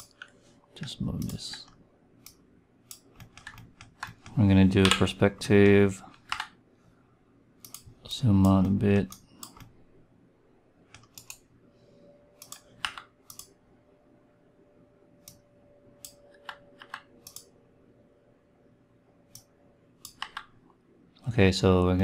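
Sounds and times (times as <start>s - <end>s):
faint steady hum: 0.0s - 22.0s
mouse and keyboard clicks: 1.2s - 5.1s, 12.4s - 13.5s, 16.0s - 17.5s, 19.3s - 20.5s.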